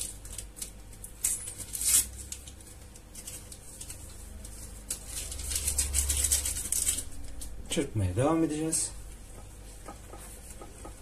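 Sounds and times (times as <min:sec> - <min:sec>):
paper sachet crinkling: 0:00.0 - 0:07.6.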